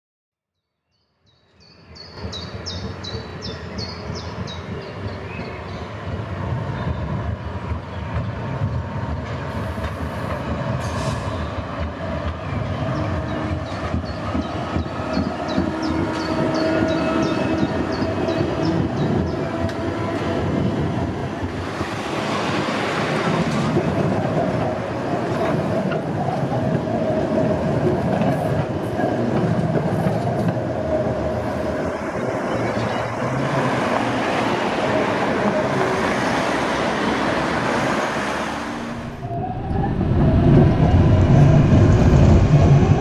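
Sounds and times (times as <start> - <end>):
tram rumbling past: 1.7 - 43.0.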